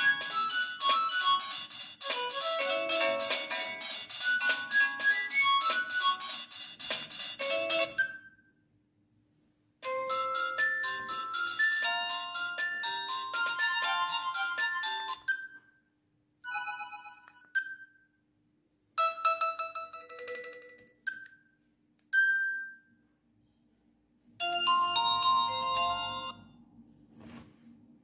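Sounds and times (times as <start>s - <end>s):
polyphonic ringtones from phone speaker: 0.0s - 8.3s, 9.8s - 15.6s, 24.4s - 26.4s.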